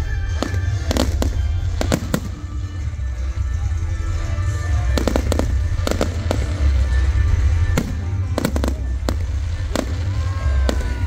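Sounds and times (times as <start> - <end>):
firework bangs: 0.0 - 11.0
firework whistle: 0.0 - 11.0
low rumble: 0.8 - 11.0.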